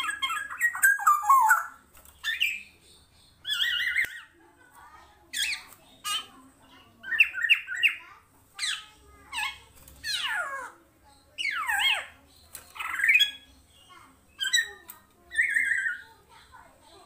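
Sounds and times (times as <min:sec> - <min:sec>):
oriole calling: 0:00.0 - 0:01.8.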